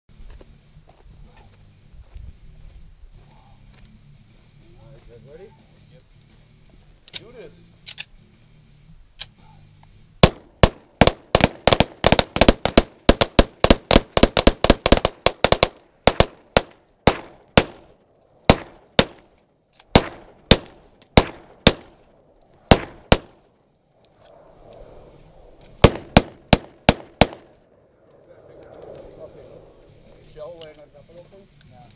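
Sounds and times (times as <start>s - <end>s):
gunshots: 10.2s - 19.3s, 19.9s - 22.0s, 22.6s - 23.4s, 25.8s - 27.6s.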